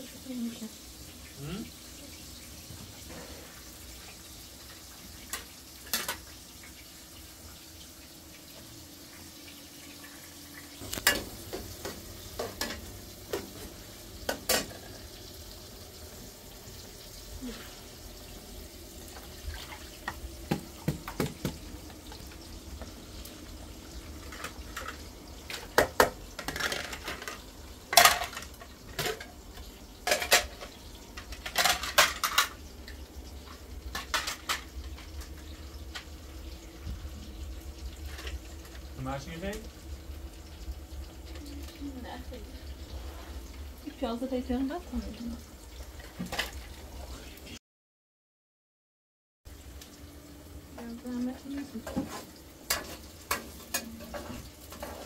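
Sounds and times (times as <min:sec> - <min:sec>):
pots and dishes clattering: 0:02.6 - 0:06.8, 0:10.0 - 0:15.4, 0:19.1 - 0:22.9, 0:23.9 - 0:32.6, 0:33.4 - 0:36.2, 0:45.8 - 0:46.8, 0:51.6 - 0:55.0
plates clinking into colander: 0:24.3 - 0:29.3, 0:30.0 - 0:32.6.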